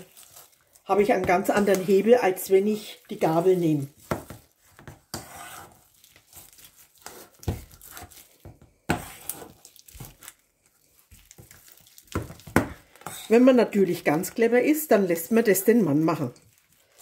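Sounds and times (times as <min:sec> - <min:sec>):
masher squishing food: 0:00.0 - 0:13.4.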